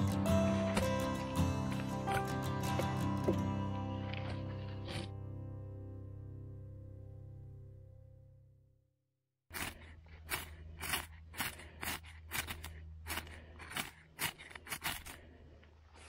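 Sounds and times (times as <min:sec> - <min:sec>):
sharp scraping strokes: 0:09.5 - 0:16.0.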